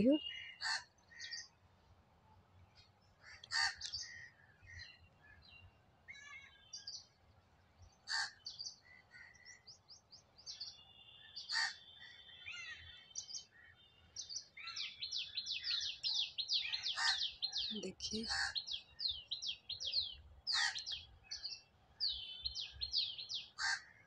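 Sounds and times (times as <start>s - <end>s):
birds chirping and calling: 0.0s - 1.6s, 2.8s - 7.2s, 7.8s - 24.0s
fast bird twittering: 14.6s - 21.5s.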